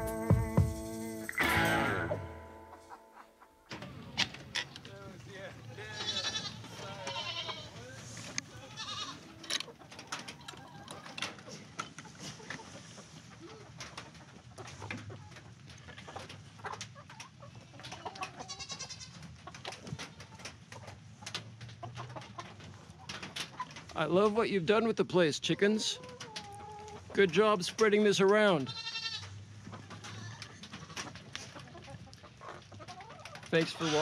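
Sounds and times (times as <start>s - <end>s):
chickens clucking: 0.0s - 34.0s.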